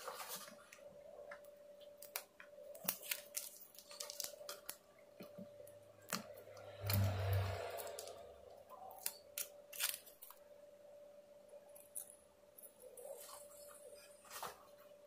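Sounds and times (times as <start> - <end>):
short low buzz: 6.5 - 8.7.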